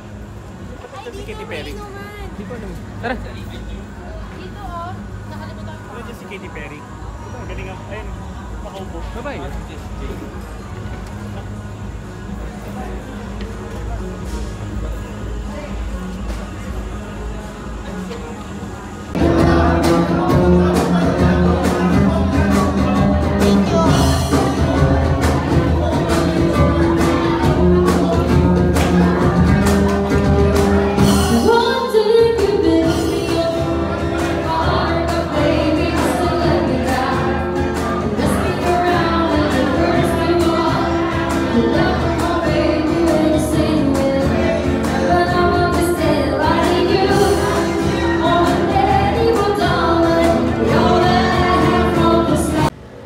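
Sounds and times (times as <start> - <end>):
acoustic guitar: 0.0 - 53.0
person singing into microphone: 19.2 - 52.7.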